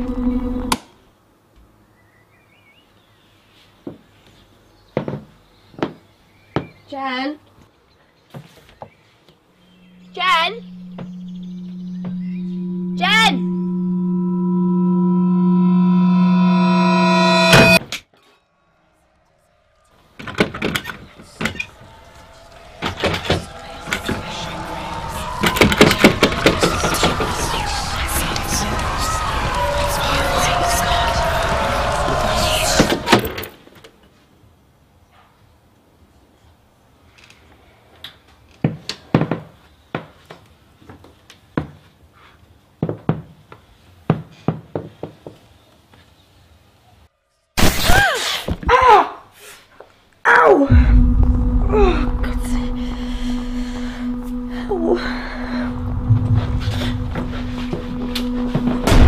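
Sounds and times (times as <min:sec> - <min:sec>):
steady tone: 0:09.6 - 0:17.8, 0:18.6 - 0:33.1, 0:50.7 - 0:59.0.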